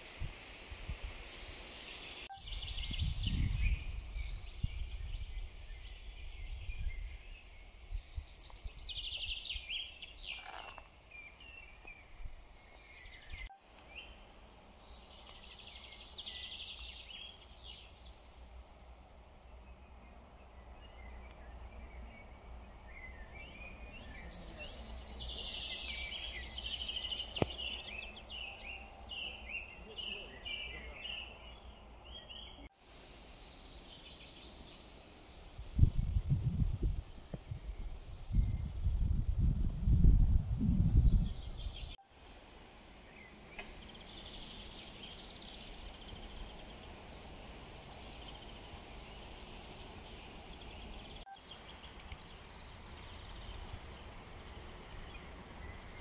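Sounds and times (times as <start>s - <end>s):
songbirds singing and chirping: 0.0s - 56.0s.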